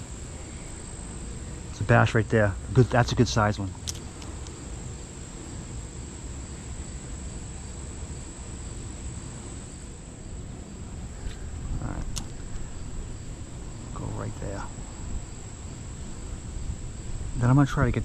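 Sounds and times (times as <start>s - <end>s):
insects trilling: 0.0s - 18.0s
sharp click: 3.8s - 4.6s, 12.0s - 12.6s.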